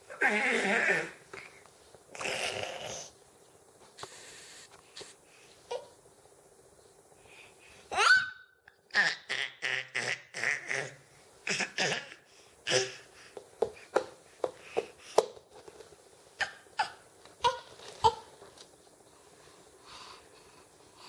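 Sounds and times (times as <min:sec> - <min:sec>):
baby laughing and babbling: 0:07.9 - 0:13.1.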